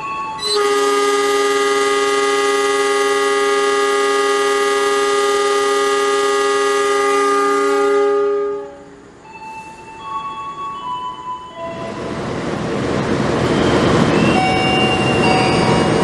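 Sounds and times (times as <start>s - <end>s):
train horn blast: 0.4s - 9.0s.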